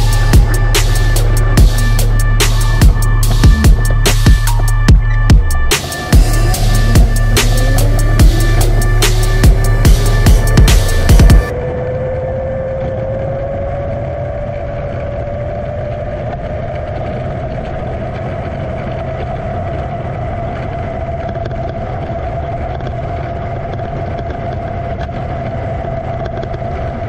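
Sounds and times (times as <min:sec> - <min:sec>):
quadcopter motors whining: 0:00.0 - 0:19.2
wind rumble on microphone: 0:00.0 - 0:27.0.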